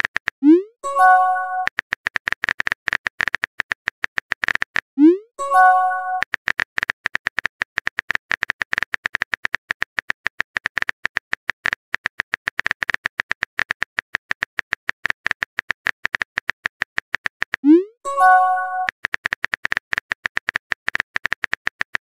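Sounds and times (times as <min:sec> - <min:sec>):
rapid keyboard key clicks: 0:06.2 - 0:17.7, 0:18.4 - 0:22.0.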